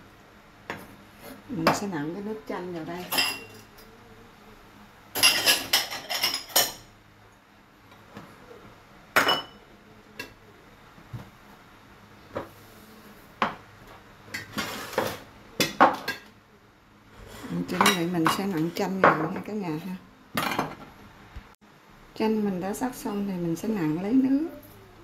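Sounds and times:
ceramic plates clinking: 5.2s - 6.9s.

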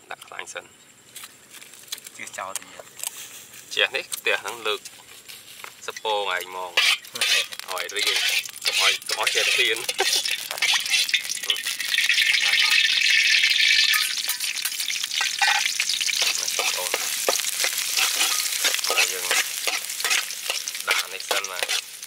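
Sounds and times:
food sizzling in hot oil: 4.1s - 22.0s
spatula scraping a pan: 6.7s - 12.8s, 13.7s - 22.0s.

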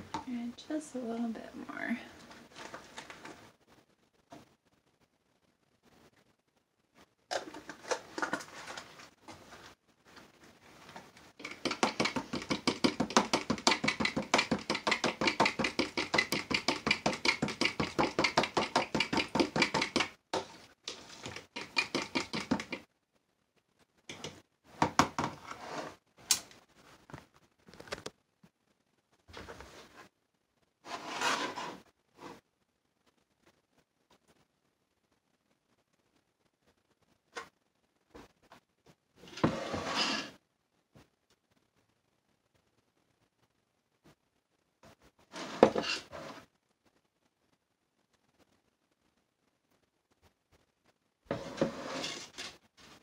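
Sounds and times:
spoon stirring in plastic jug: 7.3s - 9.1s, 10.9s - 22.8s.

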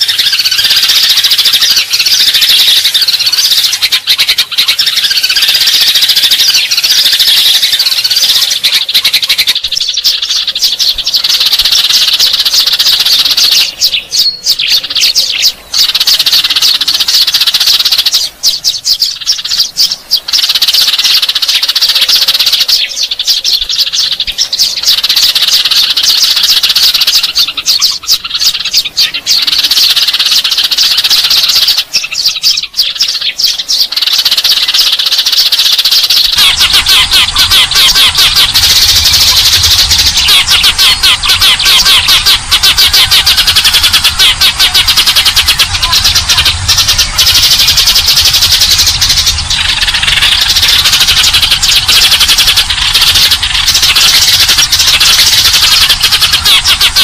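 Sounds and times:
sparrows chirping in chorus: 0.0s - 57.0s.

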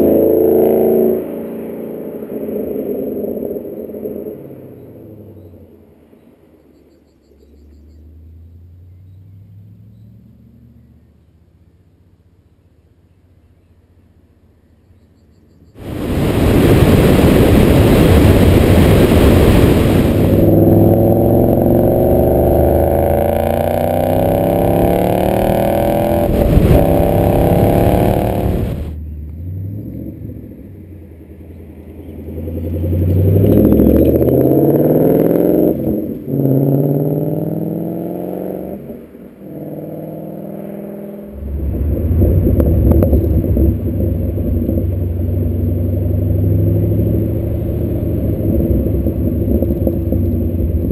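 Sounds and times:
car engine accelerating hard: 0.0s - 5.6s, 15.8s - 50.9s.

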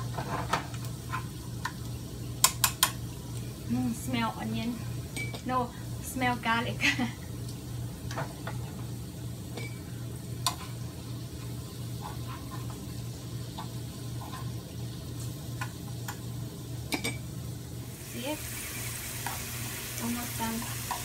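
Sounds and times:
garlic sizzling in oil: 7.4s - 21.0s.

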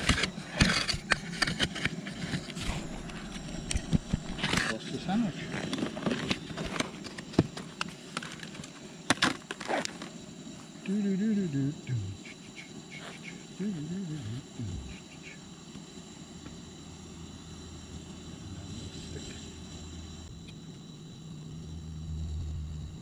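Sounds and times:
gas stove hissing: 0.0s - 23.0s
low hum: 2.1s - 6.7s, 10.9s - 23.0s
person speaking: 10.9s - 15.4s.

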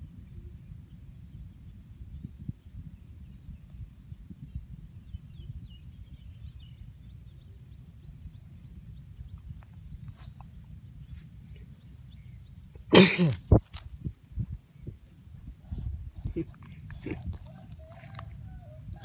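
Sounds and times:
low uneven rumble: 14.0s - 19.0s.

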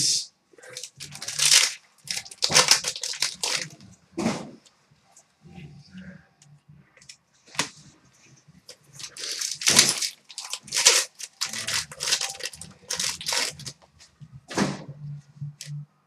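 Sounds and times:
foil wrapper ripping and crinkling: 0.7s - 3.7s, 9.0s - 13.7s.

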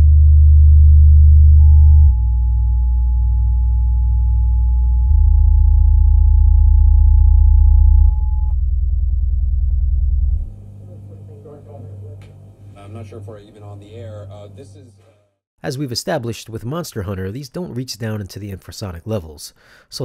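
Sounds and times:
deep bass drone: 0.0s - 14.8s.

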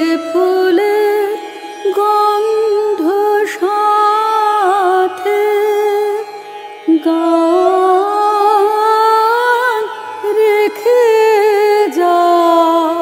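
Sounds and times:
older woman singing: 6.9s - 13.0s.

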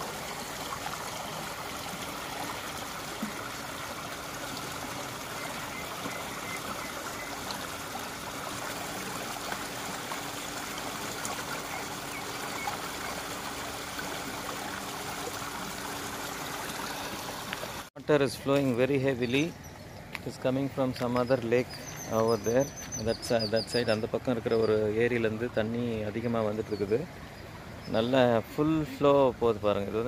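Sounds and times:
floodwater rushing in a channel: 0.0s - 17.9s.

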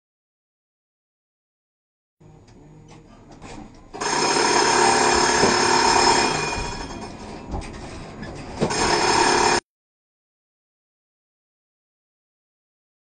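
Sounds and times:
tram warning bell ringing: 3.9s - 7.4s, 8.7s - 9.6s.

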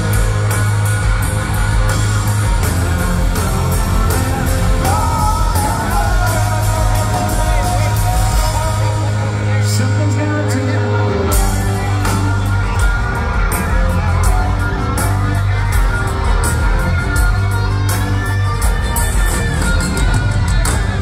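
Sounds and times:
drum and cymbal hits: 0.0s - 9.2s
bass guitar: 0.0s - 21.0s
distorted electric guitars: 0.0s - 21.0s.

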